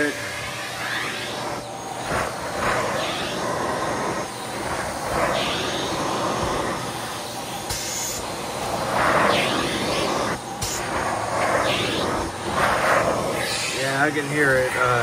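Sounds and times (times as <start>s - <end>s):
vacuum cleaner suction: 0.0s - 15.0s.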